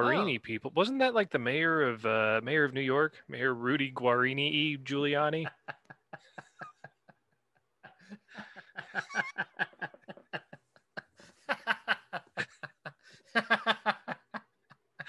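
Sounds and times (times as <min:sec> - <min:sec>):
laughter in short bursts: 0:08.0 - 0:10.5.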